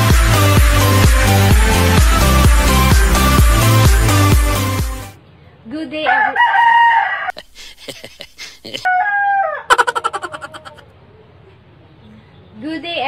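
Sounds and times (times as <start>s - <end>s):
rooster crowing: 6.1s - 7.4s, 8.7s - 10.9s.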